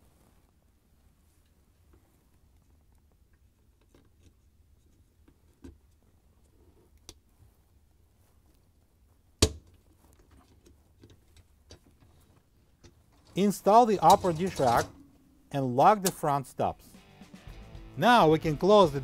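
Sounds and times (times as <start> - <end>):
faint clicks and handling: 1.3 - 15.0.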